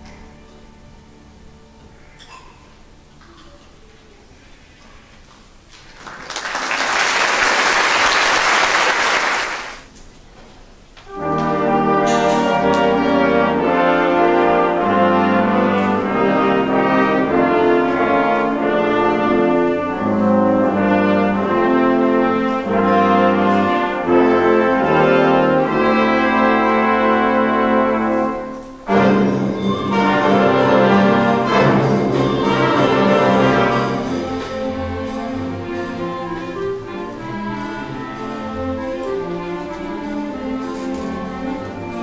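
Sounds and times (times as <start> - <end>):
audience applause: 5.7 - 9.9
orchestra brass chords: 11.1 - 42.0.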